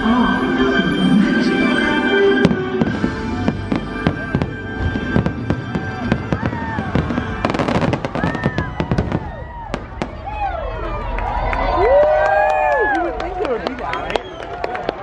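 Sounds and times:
fireworks whistling: 0:00.2 - 0:10.3
fireworks bangs: 0:02.4 - 0:11.3.

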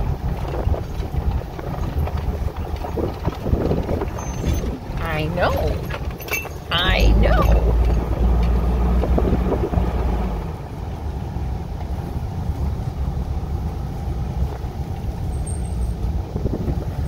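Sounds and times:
vehicle engine and road rumble: 0:00.0 - 0:17.0.

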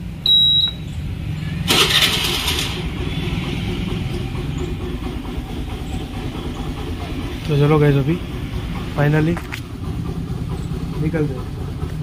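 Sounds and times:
scooter engine idling: 0:00.1 - 0:12.0
short high beep: 0:00.2 - 0:01.0
starter cranking: 0:01.7 - 0:12.0.

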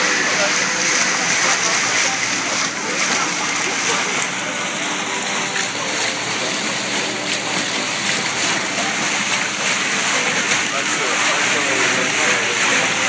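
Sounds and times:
water rushing along boat hull: 0:00.0 - 0:13.0.

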